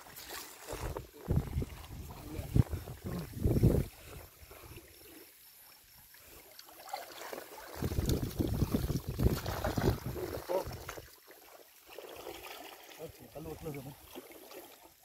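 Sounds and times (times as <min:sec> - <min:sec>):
wading splashes: 0:00.0 - 0:15.0
water splashing and sloshing: 0:00.0 - 0:15.0
water pouring off net: 0:06.6 - 0:14.8.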